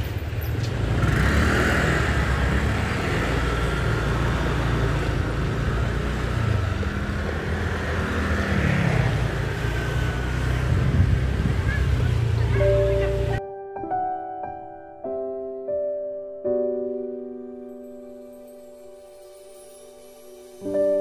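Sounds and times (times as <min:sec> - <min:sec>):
vehicle engine drone: 0:00.0 - 0:13.4
road noise: 0:00.0 - 0:13.5.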